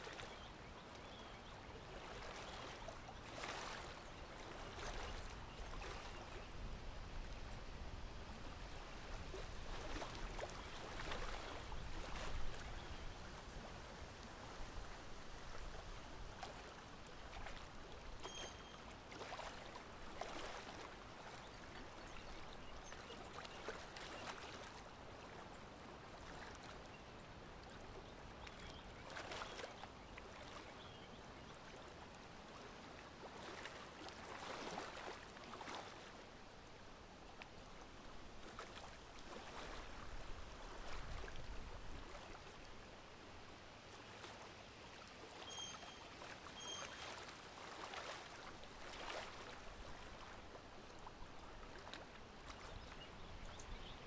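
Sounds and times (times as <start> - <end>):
light breeze: 0.0 - 54.0
water lapping at shore: 0.0 - 54.0
bird chirps: 45.5 - 46.0, 46.6 - 46.8.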